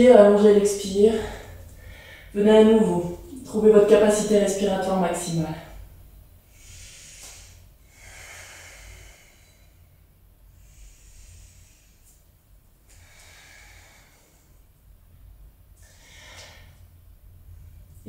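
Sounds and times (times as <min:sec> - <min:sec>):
woman breathing slowly and deeply: 0:01.2 - 0:02.4, 0:06.4 - 0:17.8.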